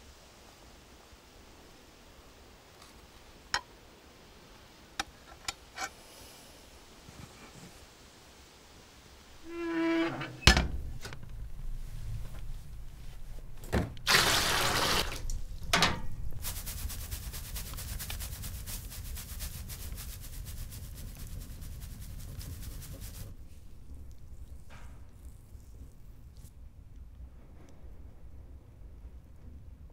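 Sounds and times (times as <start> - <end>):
wood creak: 9.4 - 12.5
water rushing: 10.2 - 16.6
loud water splash: 14.0 - 15.6.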